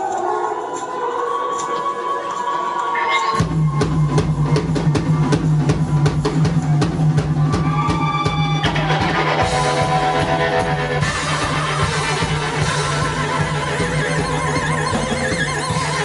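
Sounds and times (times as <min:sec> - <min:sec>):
live rock band playing: 0:03.4 - 0:16.0
guitar notes: 0:08.6 - 0:16.0.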